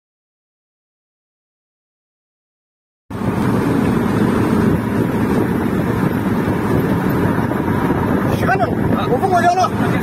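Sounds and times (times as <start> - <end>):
vehicle engine and road noise: 3.1 - 10.0
wind on microphone: 3.1 - 10.0.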